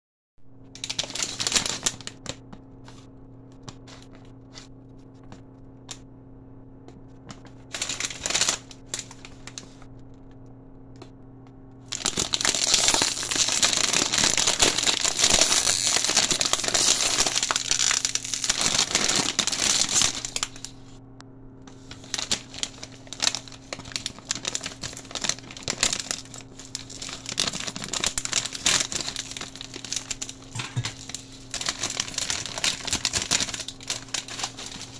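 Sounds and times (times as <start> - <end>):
plastic chip bag crinkling: 0.6 - 3.0, 7.4 - 9.8, 11.9 - 20.8, 21.8 - 34.9.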